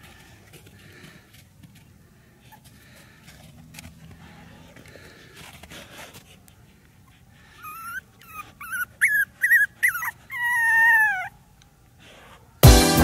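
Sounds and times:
dog whimpering: 7.5s - 11.4s.

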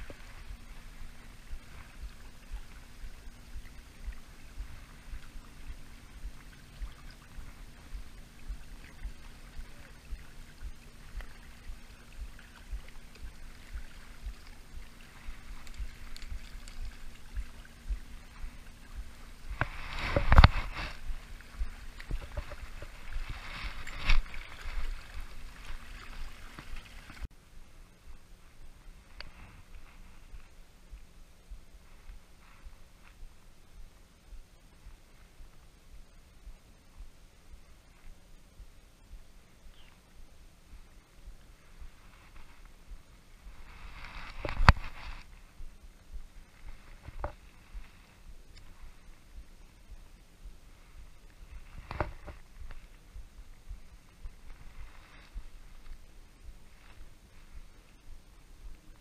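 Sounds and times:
wind buffeting microphone: 0.0s - 27.3s
faint steady hum: 0.0s - 59.0s
small waves lapping: 0.0s - 59.0s.

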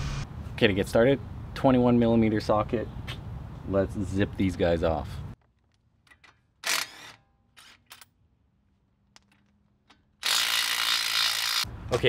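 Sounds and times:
impact wrench motor whir: 6.6s - 7.8s, 10.2s - 11.7s.

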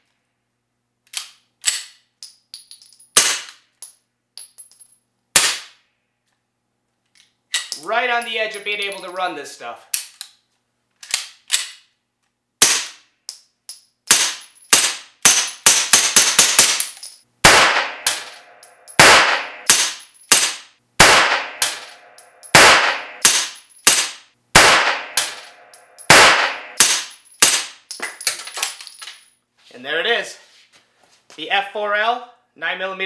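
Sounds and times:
suppressed pistol shots: 17.4s - 27.8s.

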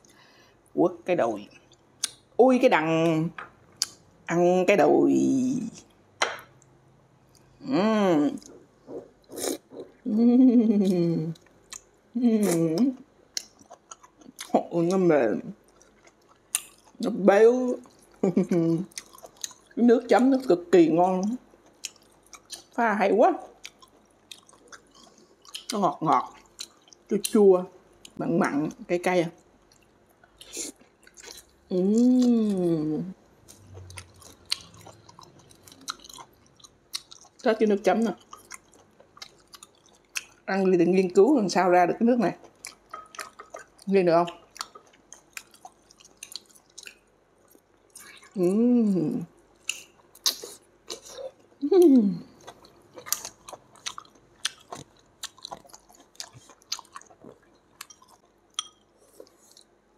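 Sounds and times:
person humming mmm: 9.3s - 11.4s, 31.7s - 33.1s, 51.6s - 52.3s
chewing with lip smacks: 13.3s - 14.6s, 15.6s - 17.1s, 18.8s - 19.8s, 21.4s - 22.8s, 23.5s - 27.4s, 29.6s - 31.6s, 33.4s - 37.5s, 38.1s - 40.4s, 42.4s - 48.4s, 49.6s - 51.6s, 52.2s - 59.7s.

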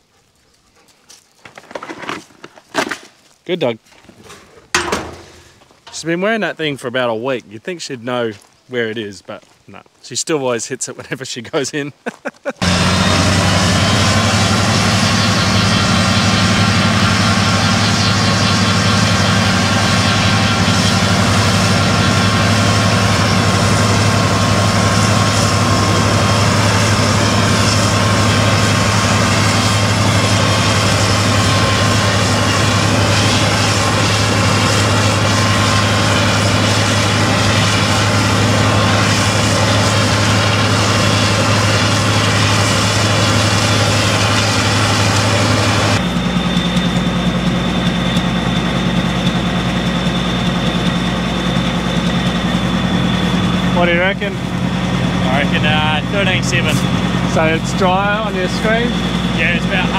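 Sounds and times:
combine harvester engine droning: 4.6s - 6.8s, 12.6s - 59.9s
high machine whine: 12.6s - 59.9s.

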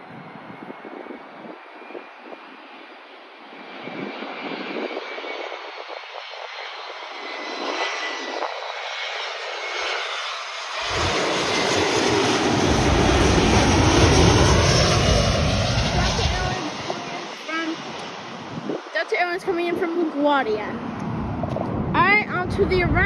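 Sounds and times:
jet airliner engine noise: 0.0s - 23.0s
deep rumble: 10.7s - 19.6s, 20.6s - 23.0s.

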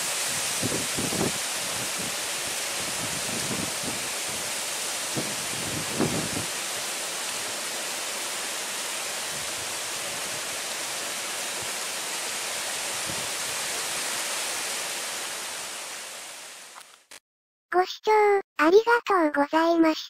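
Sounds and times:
heavy rain hissing: 0.0s - 16.8s
wind buffeting microphone: 0.3s - 2.2s, 2.8s - 4.5s, 5.1s - 6.5s.

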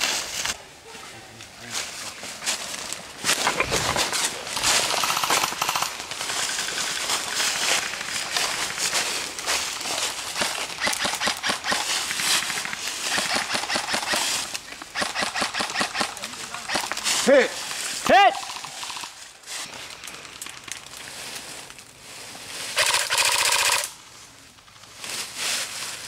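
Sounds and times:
airsoft guns firing: 4.7s - 7.2s, 10.3s - 17.1s, 22.8s - 23.9s.

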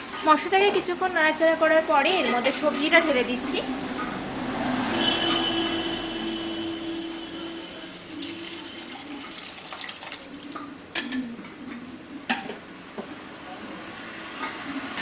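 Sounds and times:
oil frying: 0.0s - 11.1s.

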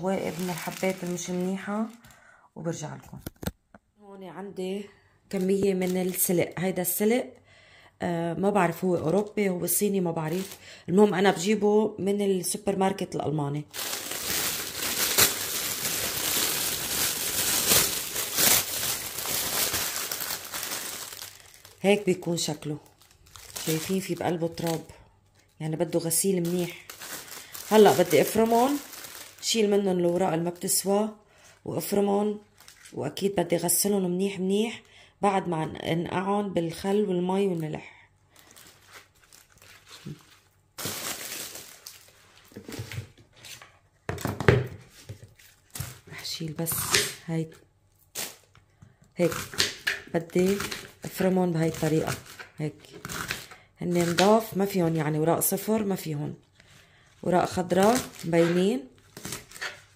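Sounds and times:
leafy greens rustling: 0.0s - 2.0s, 13.7s - 24.9s, 26.2s - 30.4s, 38.4s - 43.0s
plastic bag crinkling: 0.0s - 2.1s, 5.3s - 6.6s, 8.6s - 10.9s, 13.6s - 30.9s, 38.3s - 43.0s, 57.2s - 59.9s.

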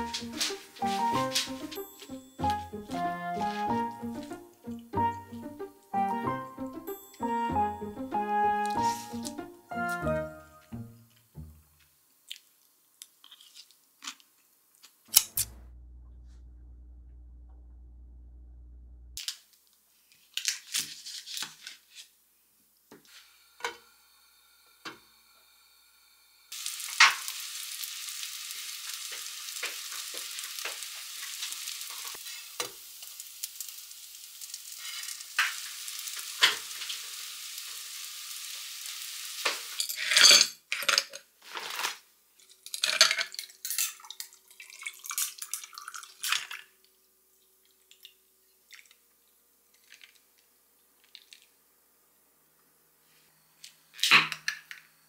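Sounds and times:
bread sizzling in a frying pan: 0.0s - 2.2s, 26.4s - 39.9s
metal tongs scraping a pan: 39.6s - 41.0s.

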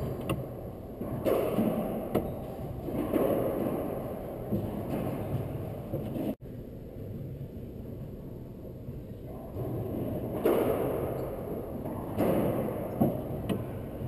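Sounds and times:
racquetball hits echoing: 0.0s - 6.0s, 10.2s - 13.8s.

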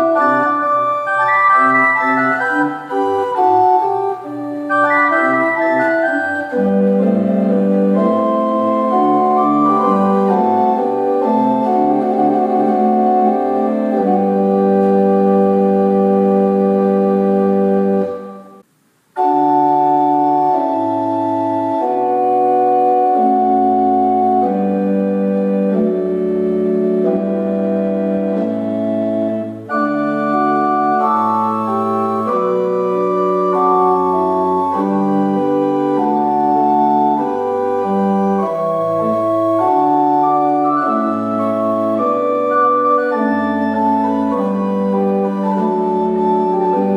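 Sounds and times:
pipe organ playing chords: 0.0s - 18.6s, 19.2s - 46.9s.

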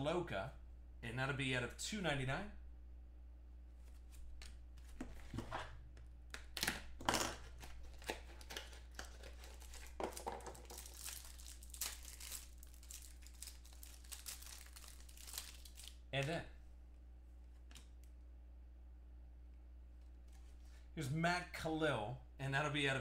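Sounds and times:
plastic wrapping crinkling and tearing: 6.6s - 16.0s.

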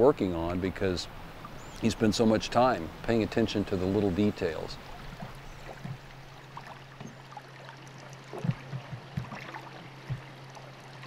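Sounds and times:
water lapping along boat hull: 0.0s - 11.0s
short splashes: 4.8s - 11.0s.

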